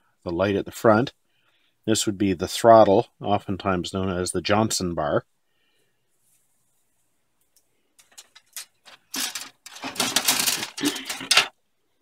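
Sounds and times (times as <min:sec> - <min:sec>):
plastic sprues clattering: 0:08.0 - 0:11.6.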